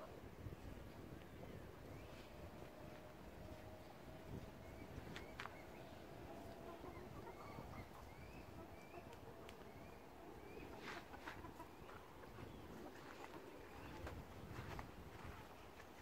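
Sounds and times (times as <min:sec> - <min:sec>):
chickens calling: 0:00.9 - 0:16.0.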